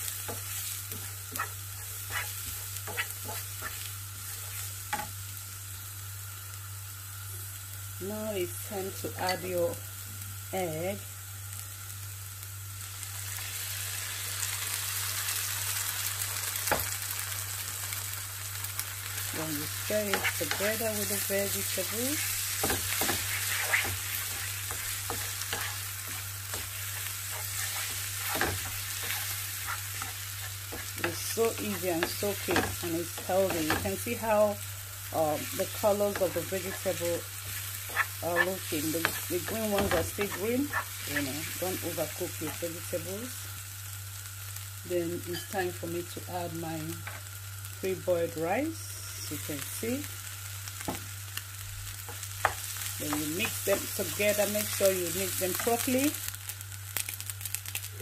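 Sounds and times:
vegetables sizzling in oil: 0:00.0 - 0:58.0
wooden spatula scraping pan: 0:00.3 - 0:03.9, 0:22.6 - 0:34.2.

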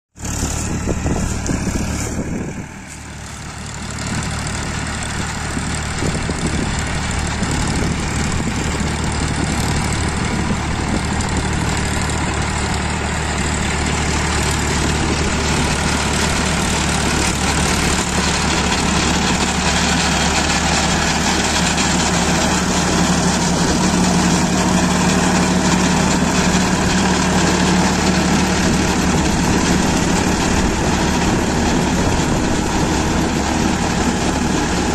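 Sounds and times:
tractor diesel engine under load: 0:00.1 - 0:34.9.

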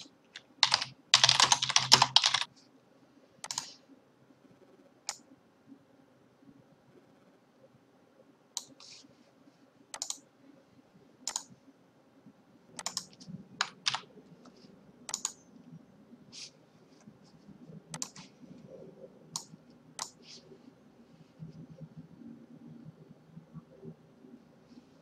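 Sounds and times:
computer mouse clicking: 0:00.0 - 0:02.5, 0:03.4 - 0:03.8, 0:05.1 - 0:05.3, 0:08.6 - 0:08.9, 0:09.9 - 0:10.3, 0:11.2 - 0:11.5, 0:12.8 - 0:15.4, 0:17.9 - 0:18.3, 0:19.3 - 0:20.2.

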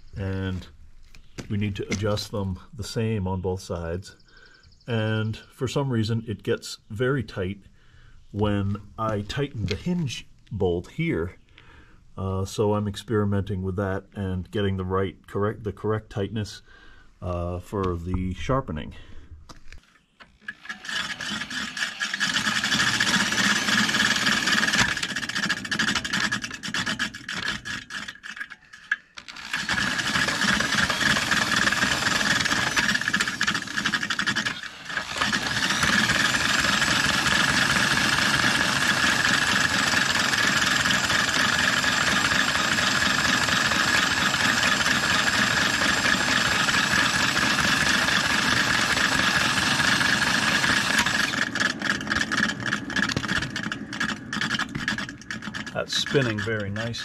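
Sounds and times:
mower blades grinding: 0:00.0 - 0:02.7, 0:19.5 - 0:57.0
electric drill spinning: 0:19.6 - 0:56.9.

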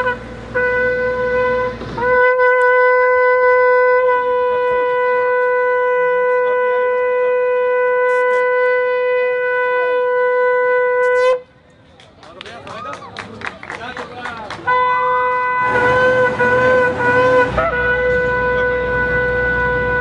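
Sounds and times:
shofar blasts: 0:00.0 - 0:11.5, 0:14.7 - 0:20.0.

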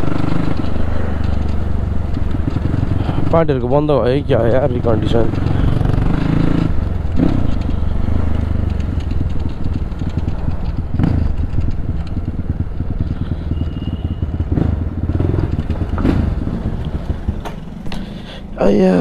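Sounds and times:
motorcycle engine running: 0:00.0 - 0:19.0.

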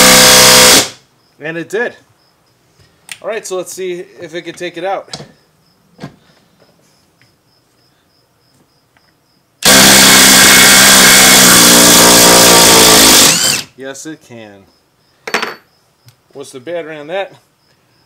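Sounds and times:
impact driver hammering: 0:00.0 - 0:01.0, 0:09.6 - 0:13.7.

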